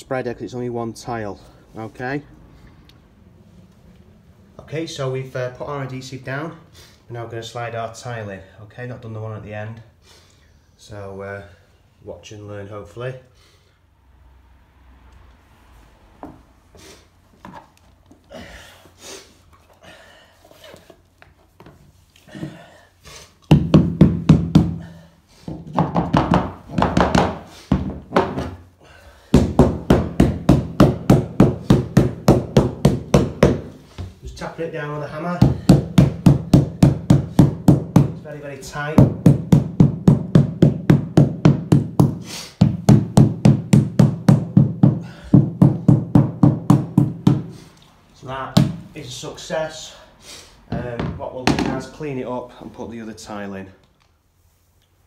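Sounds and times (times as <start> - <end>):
man breathing hard: 18.2 - 21.0, 22.2 - 23.4, 28.7 - 29.6, 42.1 - 42.7, 44.9 - 45.6
hammer tapping on floor tile: 23.4 - 24.9, 25.5 - 28.6, 29.3 - 34.1, 35.4 - 38.2, 39.0 - 47.5.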